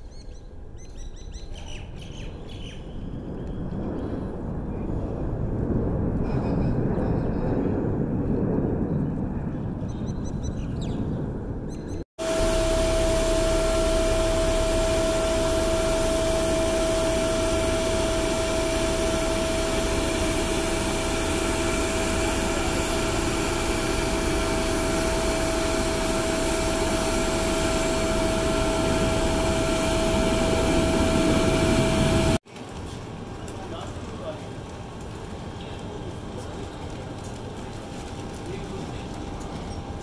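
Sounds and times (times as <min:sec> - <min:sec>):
low rumble: 0:02.7 - 0:32.4
gas turbine high whine: 0:10.5 - 0:40.0.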